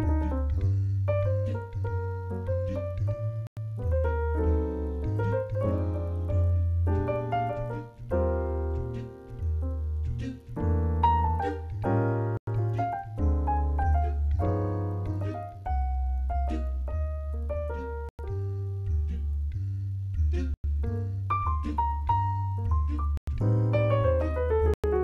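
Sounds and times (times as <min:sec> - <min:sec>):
slow bossa nova piano: 0:00.0 - 0:19.2
deep bass line: 0:00.0 - 0:25.0.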